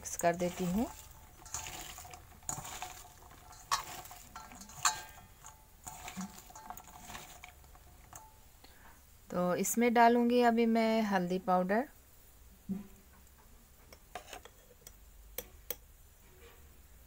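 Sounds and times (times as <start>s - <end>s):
vegetable pieces rustling: 0.0s - 8.5s.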